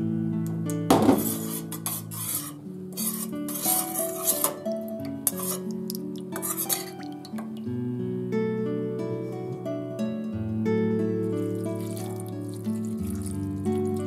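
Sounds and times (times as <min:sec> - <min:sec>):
soft background music: 0:00.0 - 0:14.0
metal spoon stirring in steel bowl: 0:01.2 - 0:07.5, 0:11.5 - 0:14.0.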